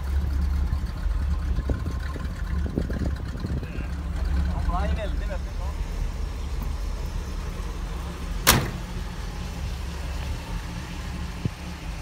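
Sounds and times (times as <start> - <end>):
car engine idling: 0.0 - 12.0
car door shutting: 8.4 - 9.1.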